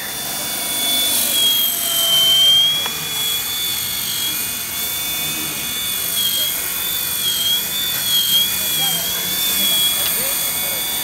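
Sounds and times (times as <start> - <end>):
drone motors high whine: 0.0 - 11.0.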